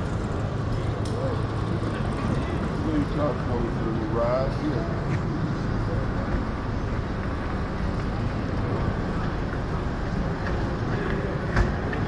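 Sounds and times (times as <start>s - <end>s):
city traffic rumble: 0.0s - 12.0s.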